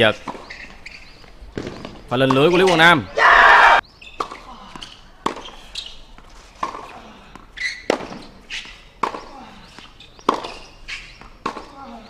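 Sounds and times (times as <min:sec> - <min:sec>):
racket hitting tennis ball: 0:04.2 - 0:12.0.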